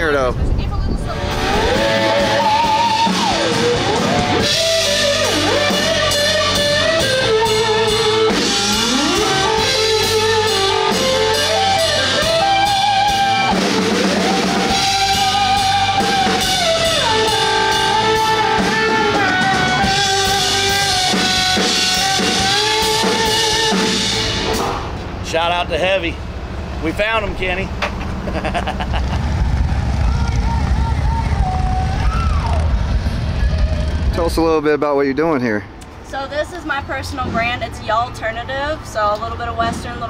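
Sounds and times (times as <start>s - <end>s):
rock music: 0.7s - 28.2s
sliding lead guitar line: 1.0s - 24.6s.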